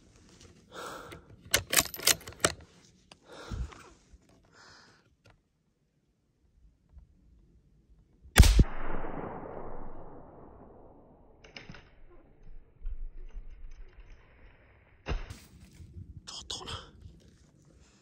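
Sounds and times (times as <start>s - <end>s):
faint handling clicks: 1.1s - 4.5s
gunshot echoing: 8.4s - 11.4s.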